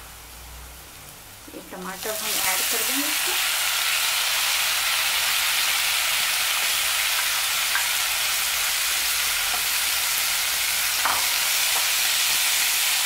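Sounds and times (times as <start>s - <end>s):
vegetables sizzling in a frying pan: 0.0s - 13.0s.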